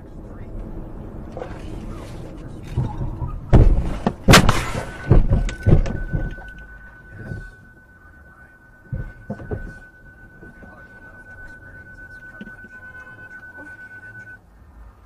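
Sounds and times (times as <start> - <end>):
car crash knocks and bangs: 2.8 - 6.5
steady high beep: 4.6 - 14.5.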